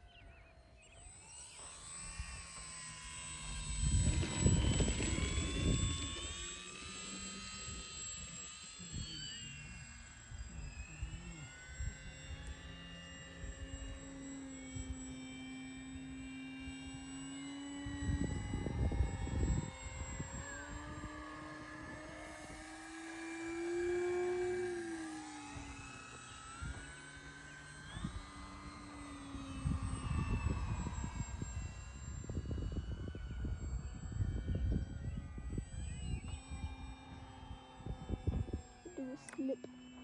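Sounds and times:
model plane motor humming: 0.0s - 40.0s
wind buffeting microphone: 3.6s - 6.8s, 17.8s - 22.2s, 29.6s - 37.2s, 37.8s - 38.8s.

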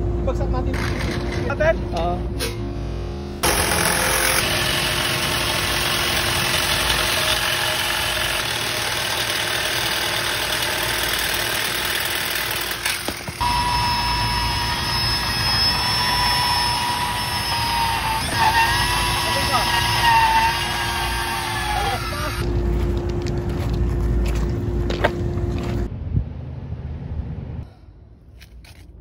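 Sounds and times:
band saw whining through metal: 3.4s - 22.4s
power saw cutting steel: 3.4s - 22.4s.

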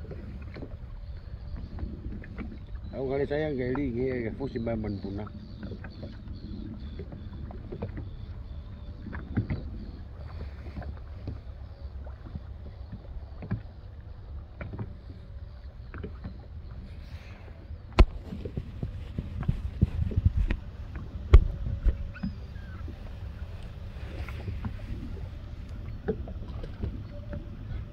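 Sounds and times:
waves lapping against boat hull: 0.0s - 27.9s
knocks on boat: 17.9s - 18.6s, 21.3s - 22.0s.

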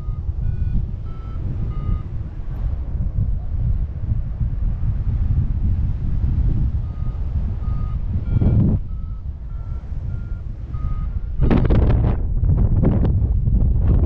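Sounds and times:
short beeps: 0.0s - 2.2s, 6.8s - 11.3s
wind buffeting microphone: 0.0s - 14.0s.

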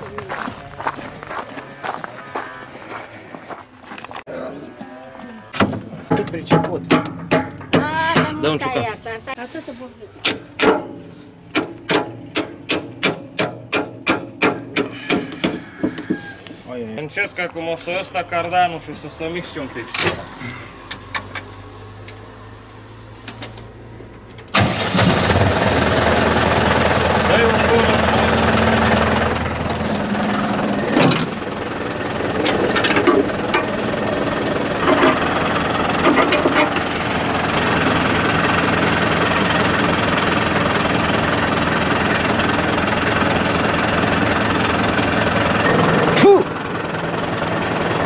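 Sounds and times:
diesel tractor engine idling: 5.7s - 48.0s
loud mechanical clatter: 24.4s - 48.0s.

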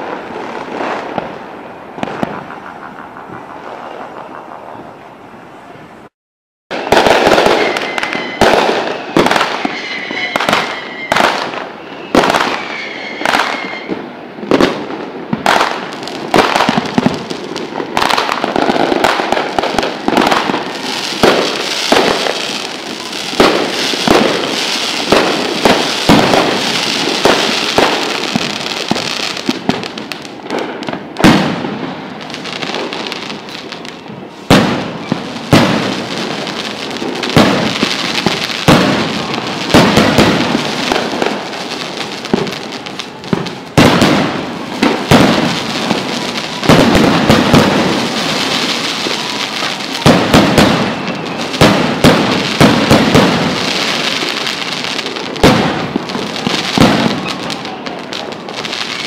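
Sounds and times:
fireworks bursting with loud bangs: 0.0s - 5.0s, 6.7s - 59.0s.

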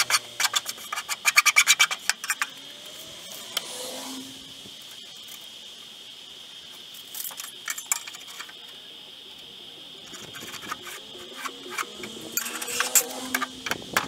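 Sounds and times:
tape measure clicking and rattling: 10.1s - 14.0s.

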